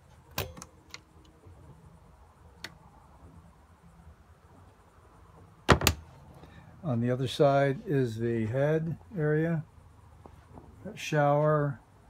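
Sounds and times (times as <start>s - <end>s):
wooden locker door clicks: 5.7s - 6.0s.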